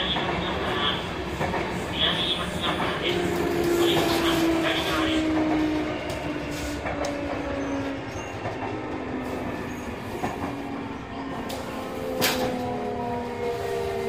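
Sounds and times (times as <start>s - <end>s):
sharp clicks from rails: 2.4s - 7.6s, 11.4s - 13.0s.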